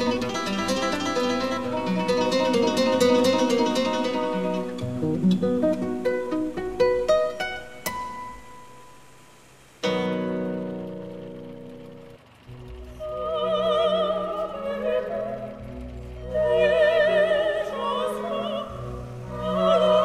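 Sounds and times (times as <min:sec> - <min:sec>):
plucked string instrument music: 0:00.0 - 0:09.1, 0:09.8 - 0:20.0.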